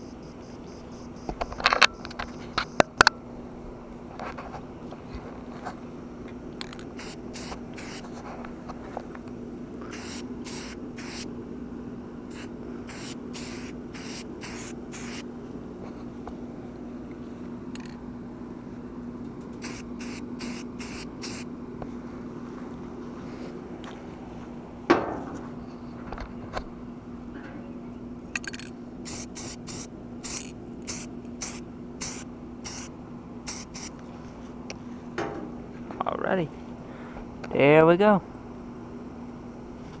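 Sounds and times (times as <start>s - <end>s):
spray-paint can hissing: 7.0s - 8.1s, 9.9s - 11.3s, 12.3s - 15.2s, 19.6s - 21.5s, 29.0s - 32.9s, 33.5s - 34.0s.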